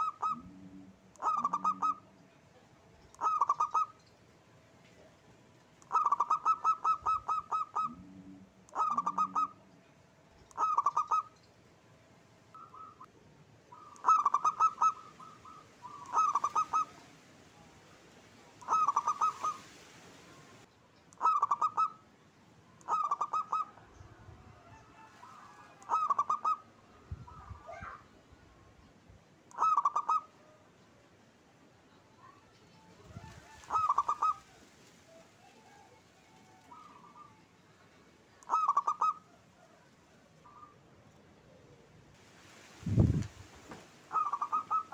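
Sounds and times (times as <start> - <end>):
dove cooing: 0.0 - 2.2, 3.2 - 4.0, 5.8 - 9.7, 10.5 - 11.4, 12.6 - 13.1, 13.7 - 17.2, 18.6 - 19.7, 21.2 - 22.0, 22.8 - 28.0, 29.5 - 30.6, 33.0 - 37.5, 38.4 - 40.8, 44.1 - 44.9.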